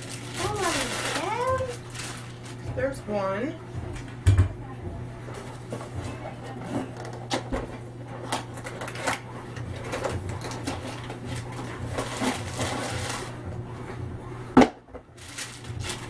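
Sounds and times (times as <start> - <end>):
plastic wrap crinkling: 0.0 - 2.8, 8.3 - 13.4, 15.2 - 16.0.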